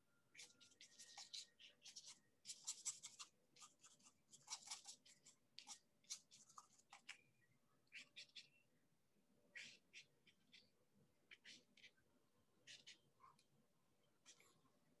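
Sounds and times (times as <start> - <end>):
paintbrush scratching on paper: 0.3 - 7.2.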